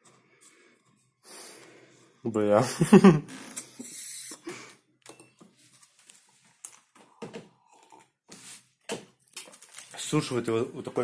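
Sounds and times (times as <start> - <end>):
person sipping and swallowing: 7.0 - 8.3.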